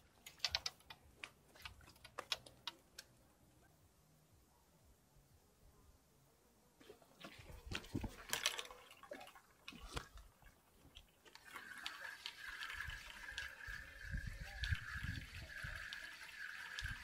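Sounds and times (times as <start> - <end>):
fishing rod clicks and knocks: 0.2 - 3.1.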